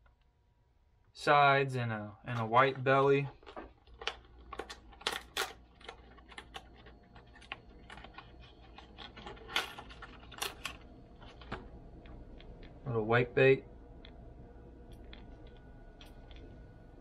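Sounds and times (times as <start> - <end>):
plastic package crinkling: 3.3 - 11.6.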